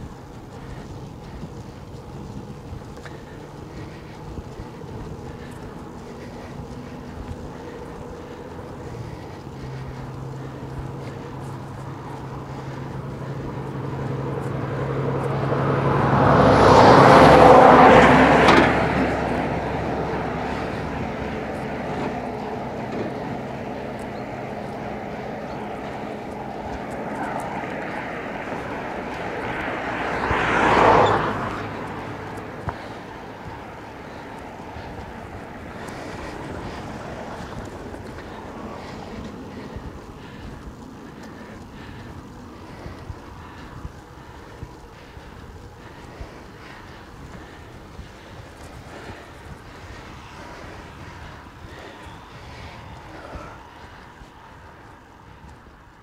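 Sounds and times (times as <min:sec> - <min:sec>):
steady low hum: 0:00.0 - 0:16.2
vehicles passing: 0:00.0 - 0:56.0.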